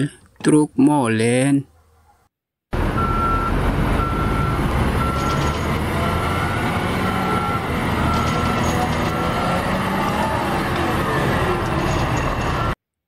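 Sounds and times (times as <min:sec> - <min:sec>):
diesel engine running: 0:02.8 - 0:12.8
reversing alarm beeping: 0:03.0 - 0:10.0.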